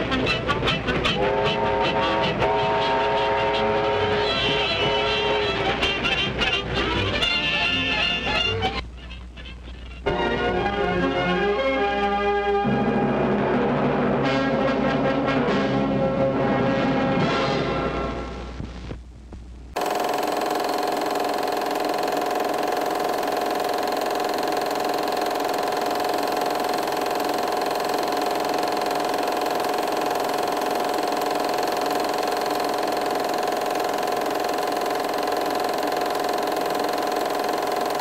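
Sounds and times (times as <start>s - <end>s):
mechanical whirring hum: 18.0s - 38.0s.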